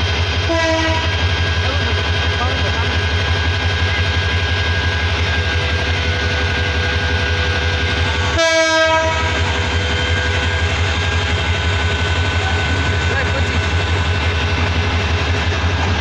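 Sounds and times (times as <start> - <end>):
diesel locomotive engine: 0.0 - 16.0
train horn blast: 0.5 - 1.2, 8.2 - 10.4.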